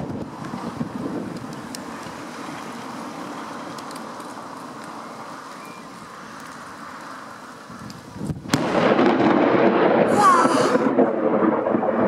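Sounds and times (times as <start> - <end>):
storm wind rushing: 7.7 - 12.0.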